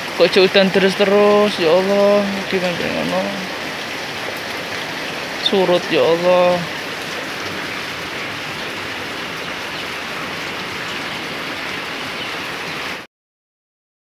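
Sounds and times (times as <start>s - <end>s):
steady rain falling: 0.0s - 13.1s.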